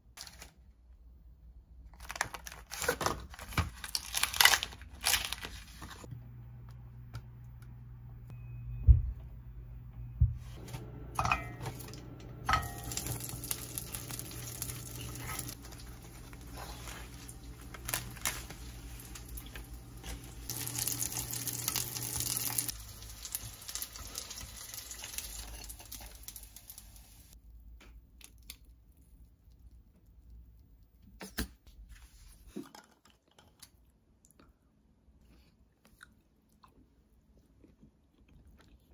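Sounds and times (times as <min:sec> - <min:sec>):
food sizzling in hot oil: 0:12.5 - 0:27.4
plastic bag crinkling: 0:12.8 - 0:25.4.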